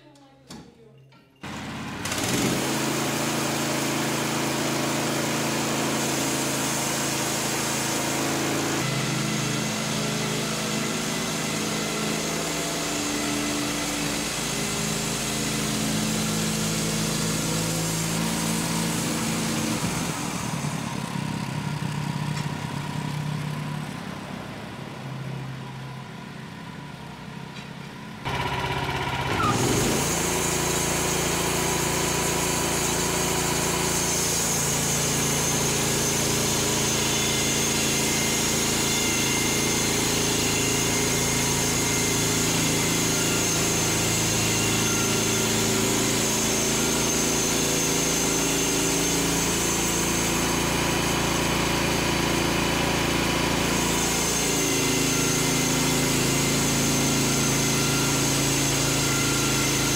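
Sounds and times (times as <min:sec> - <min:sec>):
sawmill running: 0:01.4 - 0:59.9.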